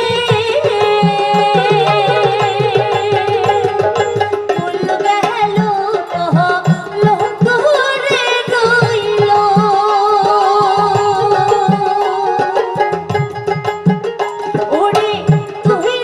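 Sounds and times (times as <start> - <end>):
woman singing: 0.0 - 12.9, 14.5 - 16.0
hand drum beat: 0.0 - 16.0
plucked lute: 0.8 - 5.4.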